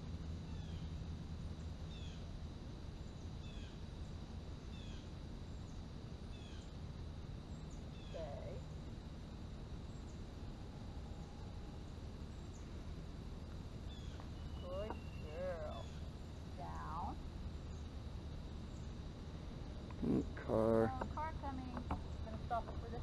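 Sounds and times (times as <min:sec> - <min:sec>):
low background hum: 0:00.0 - 0:23.0
small bird chirping: 0:00.4 - 0:01.0, 0:01.6 - 0:02.3, 0:03.0 - 0:06.8, 0:07.4 - 0:08.8, 0:09.8 - 0:23.0.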